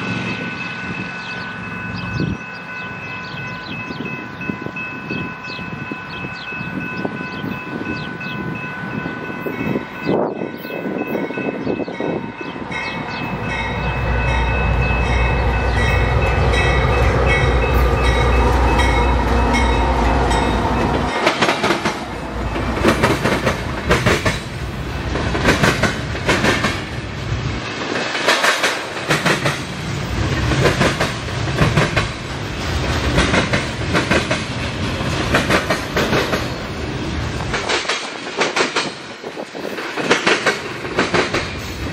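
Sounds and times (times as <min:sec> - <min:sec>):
crossing bell ringing: 0:00.0 - 0:25.0
diesel locomotive engine rumble: 0:00.0 - 0:41.9
train wheels clicking over rail joints: 0:13.0 - 0:41.9.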